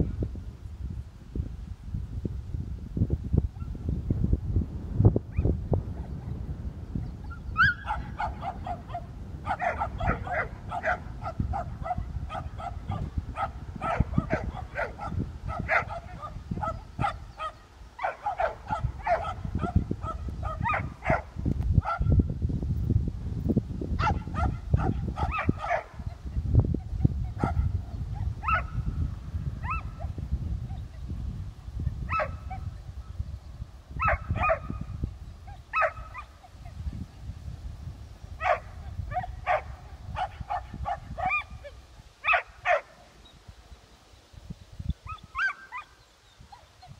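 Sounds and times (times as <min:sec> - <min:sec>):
dog barking: 0:07.6 - 0:22.1, 0:24.0 - 0:26.2, 0:27.3 - 0:28.8, 0:29.6 - 0:30.1, 0:32.1 - 0:32.7, 0:34.0 - 0:34.8, 0:35.7 - 0:36.4, 0:38.4 - 0:41.5, 0:42.2 - 0:43.0, 0:45.1 - 0:45.9.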